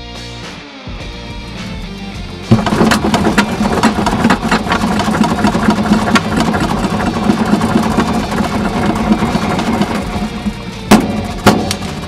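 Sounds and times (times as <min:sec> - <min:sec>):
machine humming: 0:02.5 - 0:12.0.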